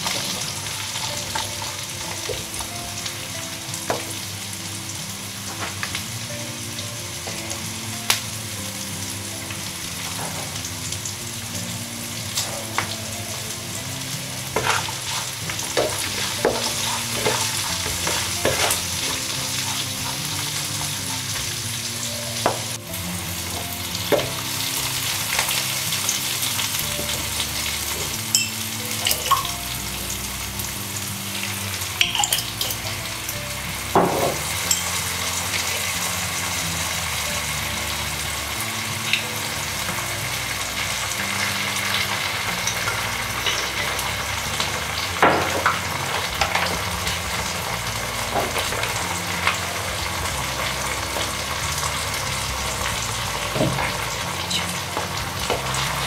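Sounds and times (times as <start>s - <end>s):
soft background music: 0.0s - 56.0s
vegetables sizzling in oil: 0.0s - 56.0s
utensil knocking on pan: 14.6s - 19.3s, 34.0s - 34.9s.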